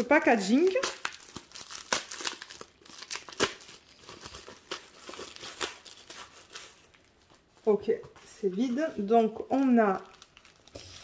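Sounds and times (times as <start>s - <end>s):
plastic mailer crinkling: 9.5s - 11.0s.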